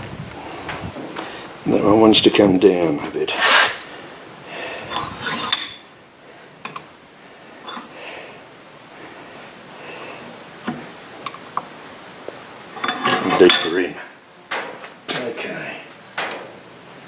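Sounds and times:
metallic clinks in a vise: 4.9s - 5.8s, 7.7s - 7.9s, 12.8s - 13.9s.

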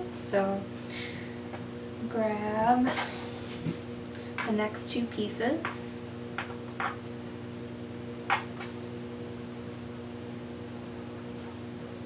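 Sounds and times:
appliance humming: 0.0s - 12.0s.

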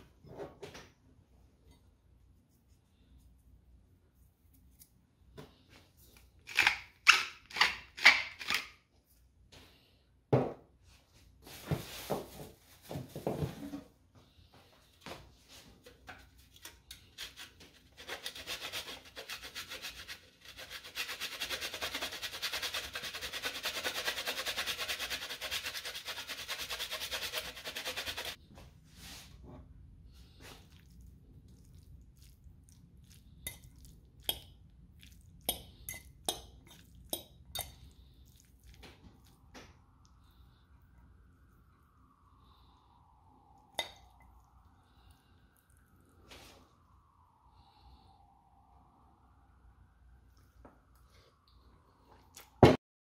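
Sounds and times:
pepper mill crunching: 6.4s - 8.7s
cheese grater rasping: 17.0s - 28.4s.

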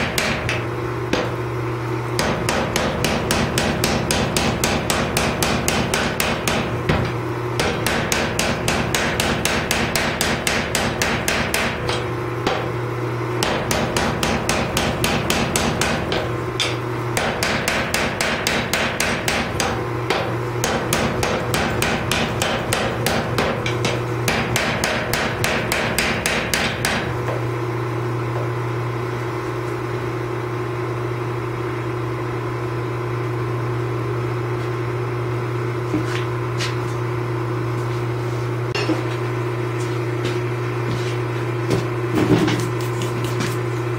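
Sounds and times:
power hammer pounding steel: 0.0s - 1.5s, 2.2s - 12.8s, 13.4s - 27.4s
machine humming: 0.0s - 42.9s.

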